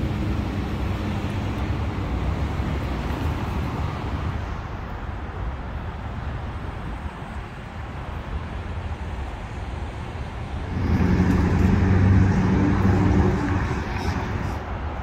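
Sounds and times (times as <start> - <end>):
vehicle engine hum: 10.4 - 15.0
steady rumbling background: 10.6 - 15.0.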